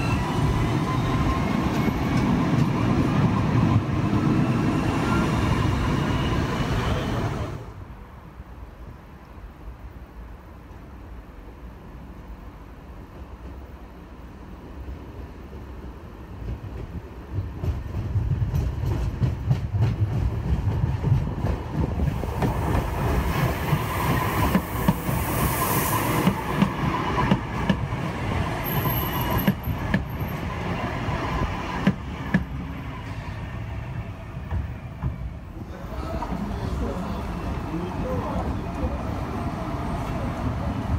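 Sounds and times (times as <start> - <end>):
tram wheels rumbling on rails: 0.0 - 8.1, 11.0 - 40.9
hiss: 22.1 - 26.9.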